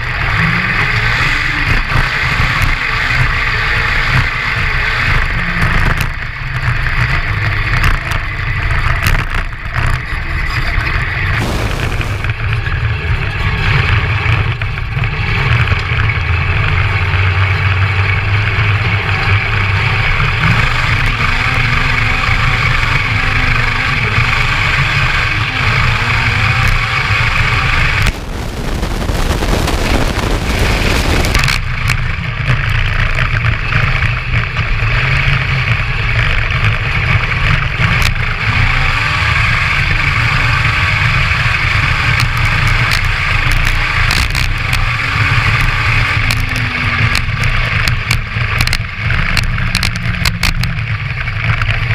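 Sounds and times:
motorcycle engine revving: 0.0s - 51.9s
rushing noise: 11.3s - 12.8s, 20.4s - 32.8s.

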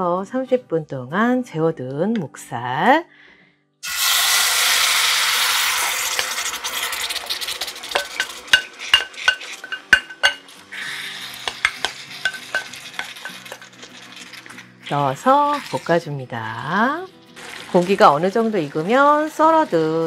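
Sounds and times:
pork sizzling in a hot pan: 3.8s - 20.0s
spoon clinking in a bowl: 7.9s - 10.5s, 11.3s - 13.8s.

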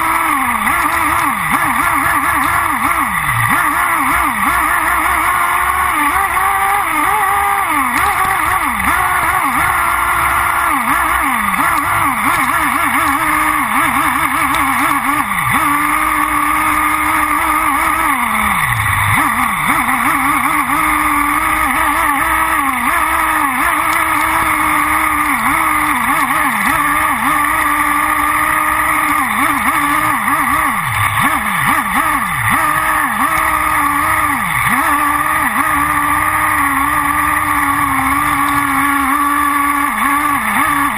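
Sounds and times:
model engine revving: 0.0s - 40.9s.

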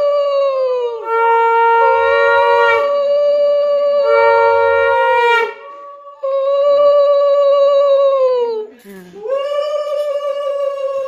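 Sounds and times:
conch shell blasts: 1.0s - 3.1s, 4.0s - 5.8s.

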